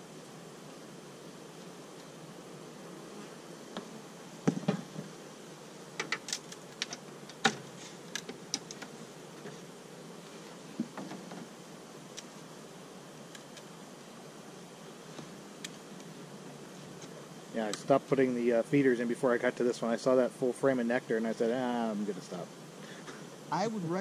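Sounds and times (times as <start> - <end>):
honeybees buzzing: 0.0 - 24.0
clicks and knocks from hive: 1.5 - 2.2, 3.2 - 5.2, 5.9 - 12.5, 13.2 - 13.8, 15.0 - 17.9.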